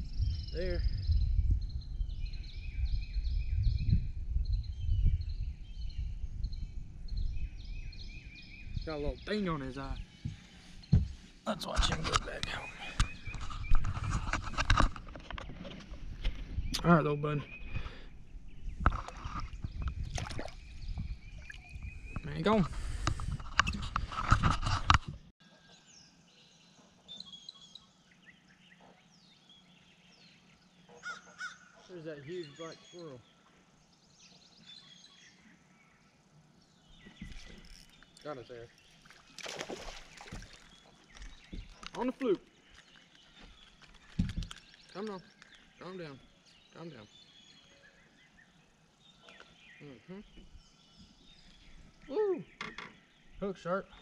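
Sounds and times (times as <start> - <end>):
wind rumble on microphone: 0.0 - 11.2, 11.8 - 25.3, 43.3 - 44.9
songbirds chirping: 0.0 - 54.0
water splashing against boat: 18.9 - 23.4, 37.2 - 42.2.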